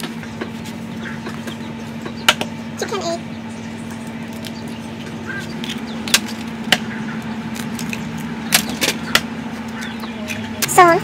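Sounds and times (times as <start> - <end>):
steady low hum: 0.0 - 11.0
eggshells cracking: 5.4 - 9.0.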